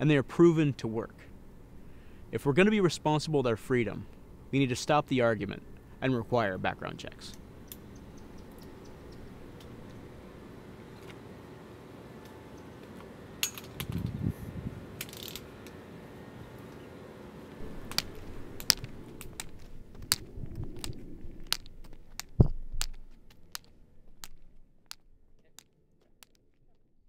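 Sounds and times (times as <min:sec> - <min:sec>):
cane tapping on concrete: 0:17.6 - 0:26.4.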